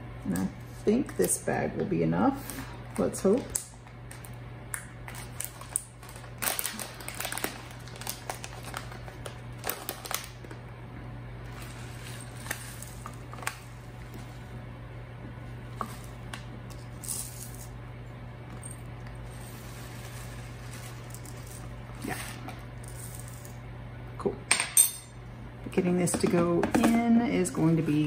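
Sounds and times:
plastic bag crinkling: 5.1 - 10.6
spoon scraping pepper flakes: 11.5 - 14.2, 19.2 - 23.6.

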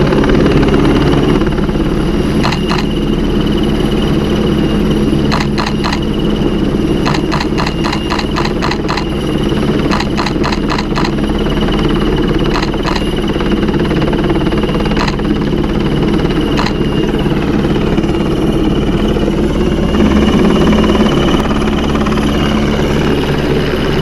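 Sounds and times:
helicopter rotor and turbine: 0.0 - 24.0
rapid evenly spaced clicks: 2.4 - 3.0, 5.3 - 6.2, 7.0 - 11.4, 12.4 - 13.2, 14.9 - 15.4, 16.6 - 16.9.

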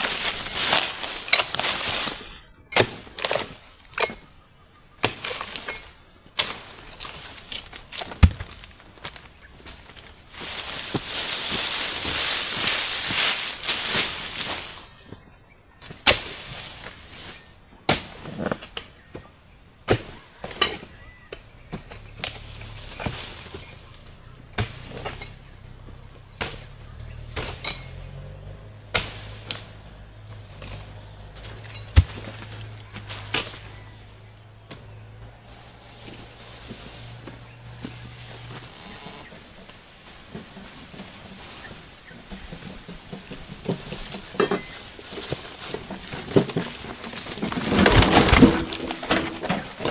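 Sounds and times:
palm frond rustling down: 0.0 - 4.2, 5.0 - 19.2, 19.9 - 49.9
insects droning: 0.0 - 49.9
blade chopping into wood: 5.0 - 5.8, 28.9 - 29.7, 31.9 - 33.6.

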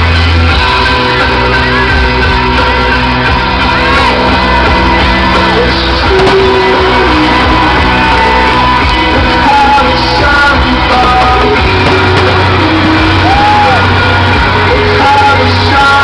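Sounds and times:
crowd singing and shouting: 0.0 - 16.0
loud music: 0.0 - 16.0.

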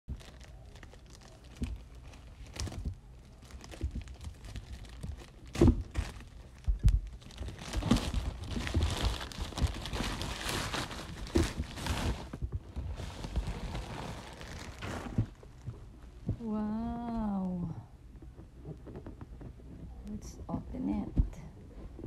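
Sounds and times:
plastic bag crinkling and tearing: 0.1 - 15.7.

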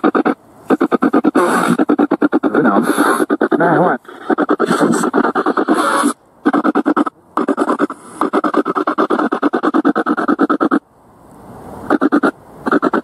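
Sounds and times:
choppy radio static: 0.0 - 10.8, 11.9 - 13.0
snatches of broadcast sound: 0.0 - 10.8, 11.9 - 13.0
voice fragment: 0.8 - 9.4.

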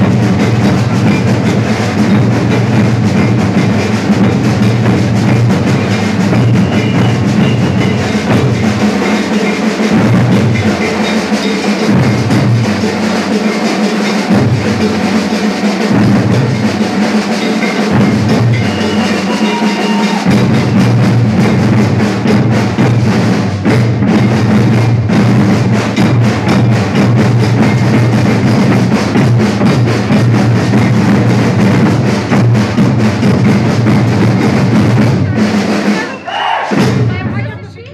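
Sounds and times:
deep bass drums: 0.0 - 8.9, 20.2 - 35.4
snare drums: 0.0 - 37.9.

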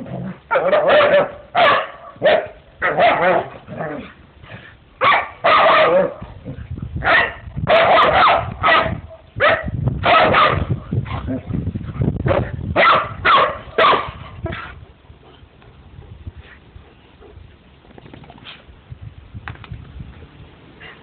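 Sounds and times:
dogs barking: 0.5 - 3.5, 5.0 - 6.2, 7.0 - 11.3, 12.3 - 14.6.

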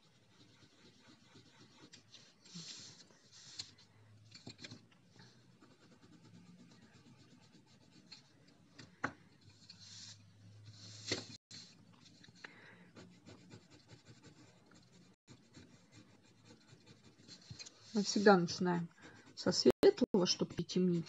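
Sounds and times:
pencil scratching on paper: 0.0 - 3.8, 4.6 - 8.4, 12.9 - 21.0.

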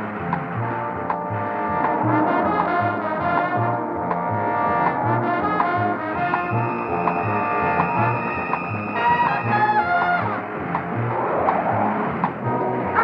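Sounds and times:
brass-led action music: 0.0 - 13.0
pulsing bass: 0.0 - 13.0
long high held note: 1.4 - 7.5.

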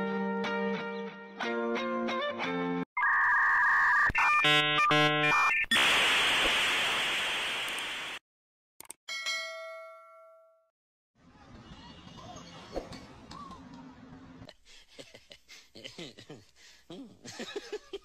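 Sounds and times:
loud hiss: 5.7 - 8.2
bell-like ding: 9.1 - 10.6.

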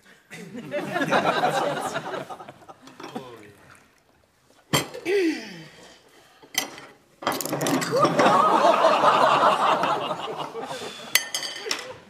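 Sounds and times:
audience laughing loudly: 0.4 - 2.9, 7.9 - 11.1
crockery clinking on table: 11.1 - 12.0.

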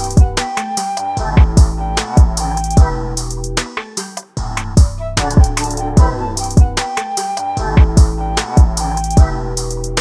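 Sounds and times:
deep kick drums: 0.2 - 0.4, 1.3 - 3.0, 4.4 - 6.8, 7.7 - 9.3
held synth notes: 4.9 - 9.8.

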